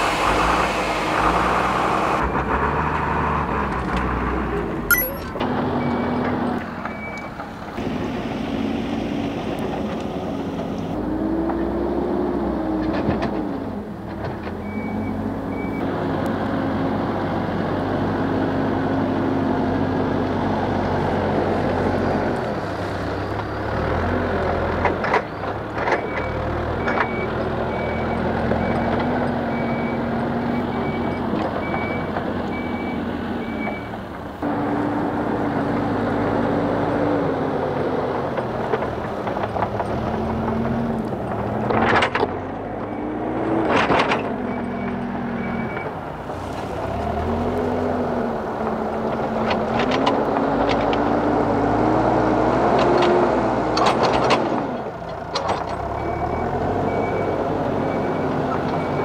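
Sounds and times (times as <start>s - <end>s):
diesel engine revving: 0.0s - 6.8s, 7.4s - 59.0s
reversing alarm beeping: 4.9s - 6.2s, 56.0s - 59.0s.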